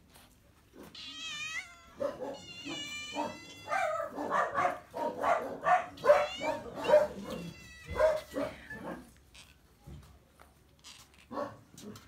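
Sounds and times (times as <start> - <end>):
cats meowing: 0.8 - 5.0, 5.9 - 9.5.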